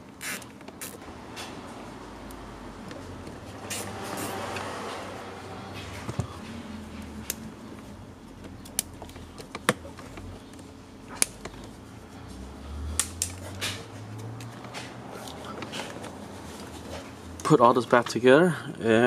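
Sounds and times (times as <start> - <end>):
side cutters snipping zip ties: 0.1 - 1.0, 3.6 - 4.7
handling wires and plastic: 5.6 - 12.1, 13.0 - 17.6.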